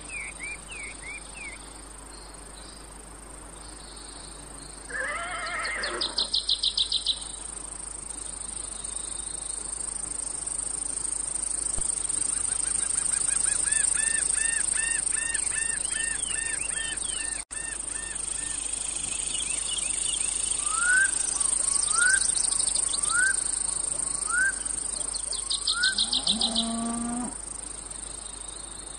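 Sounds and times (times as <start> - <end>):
cicadas droning: 0.0 - 28.9
birds calling: 4.9 - 7.2, 12.2 - 27.4
loud bird chirps: 4.9 - 7.2, 12.3 - 27.0.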